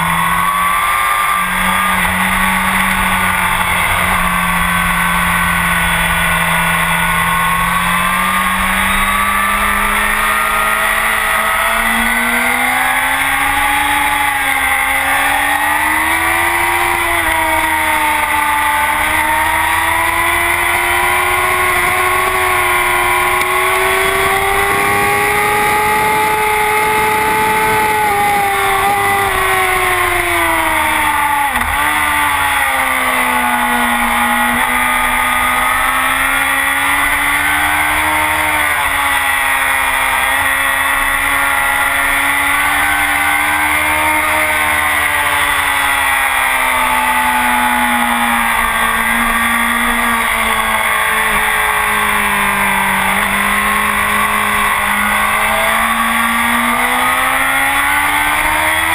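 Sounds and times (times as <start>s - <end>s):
steady rush of noise: 0.0s - 28.6s
motorcycle engine running hard: 0.0s - 58.9s.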